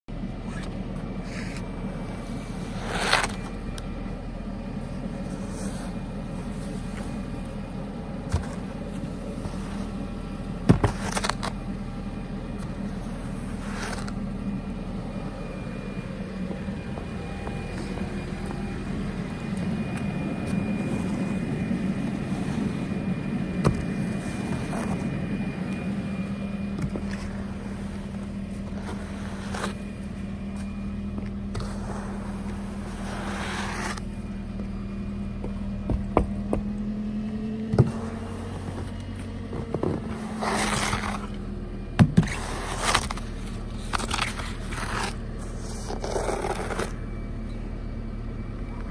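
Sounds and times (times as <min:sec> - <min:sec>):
steady low hum: 0:00.1 - 0:48.9
snow broom brushing snow off car: 0:00.5 - 0:03.8, 0:04.8 - 0:15.0, 0:16.0 - 0:34.6, 0:37.8 - 0:41.5, 0:42.2 - 0:47.0.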